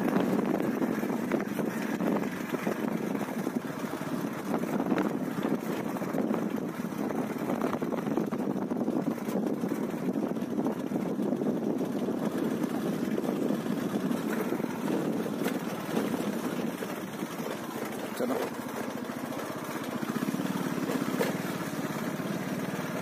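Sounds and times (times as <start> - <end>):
small engine running: 0.0 - 23.0.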